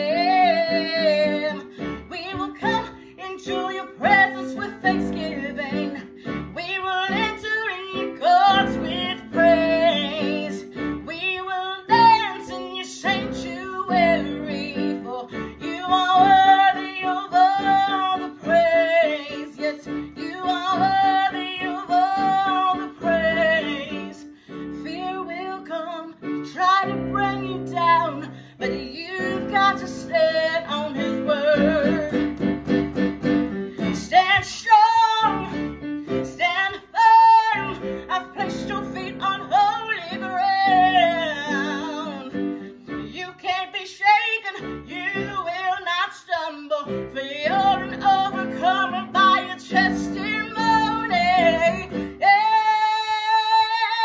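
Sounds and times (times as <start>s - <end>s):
woman singing with vibrato: 0.0s - 32.6s, 33.7s - 54.0s
instrumental accompaniment: 28.3s - 36.4s.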